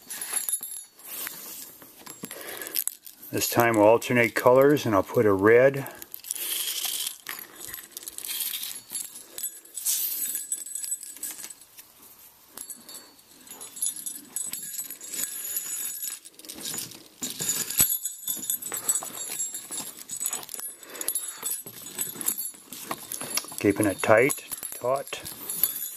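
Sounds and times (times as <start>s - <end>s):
small jingle bells jingling: 0.0s - 25.9s
leather lace rustling: 6.0s - 25.9s.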